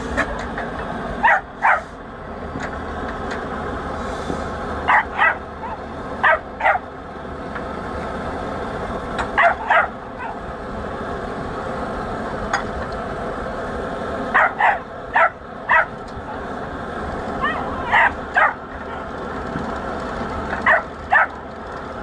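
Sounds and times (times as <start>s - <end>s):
steady background noise: 0.0s - 22.0s
dog barking: 1.2s - 1.8s, 4.9s - 6.8s, 9.4s - 10.4s, 14.4s - 15.9s, 17.4s - 19.0s, 20.6s - 21.4s.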